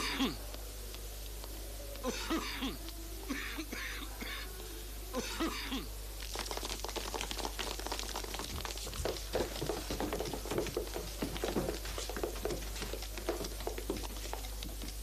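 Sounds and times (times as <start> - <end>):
clatter of desks and footsteps: 6.2 - 15.0.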